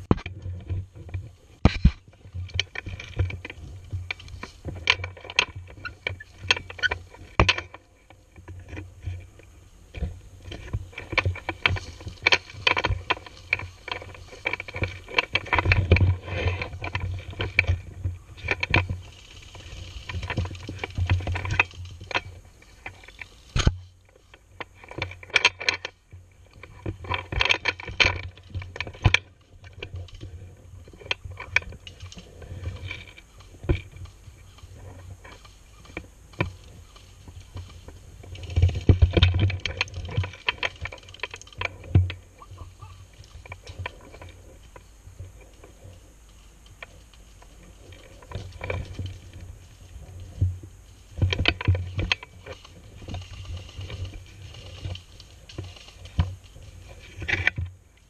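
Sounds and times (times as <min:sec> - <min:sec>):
gear rustling and knocking: 0:00.0 - 0:58.0
footsteps on dry leaves: 0:18.2 - 0:24.4.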